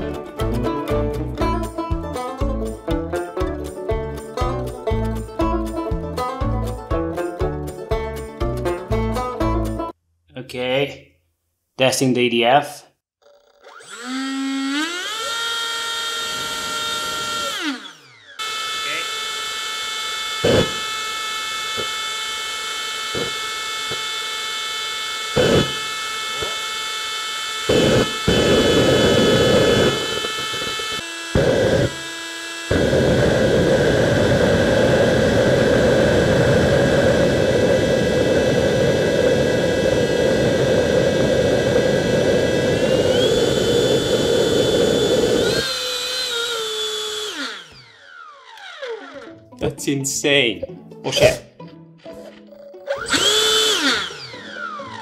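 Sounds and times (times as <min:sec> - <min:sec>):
electric fan high whine: 0:16.1 - 0:49.3, 0:52.9 - 0:55.0.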